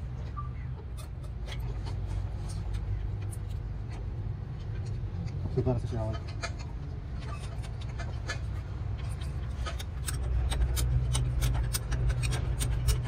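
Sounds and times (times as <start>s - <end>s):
steady low hum: 0.0s - 13.0s
tools clicking and tapping: 0.8s - 13.0s.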